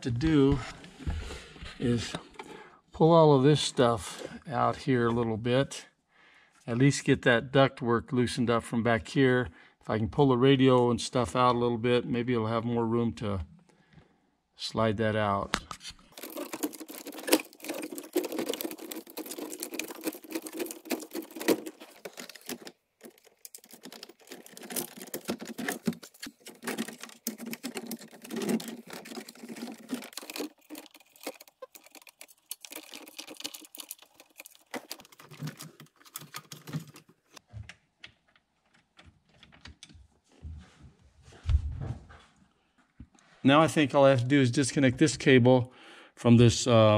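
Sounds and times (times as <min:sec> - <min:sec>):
tools and parts clicking and rattling: 0:15.8 - 0:37.4.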